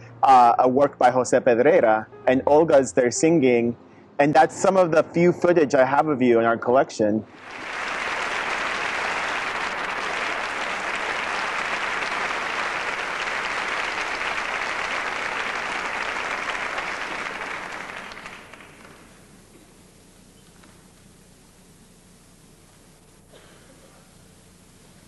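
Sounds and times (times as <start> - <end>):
audience applauding: 7.4 - 19.8.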